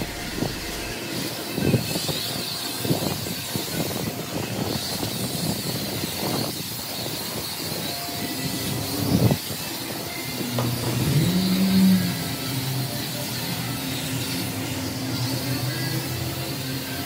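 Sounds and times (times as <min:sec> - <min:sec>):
pressure gun spraying: 0:00.0 - 0:03.7.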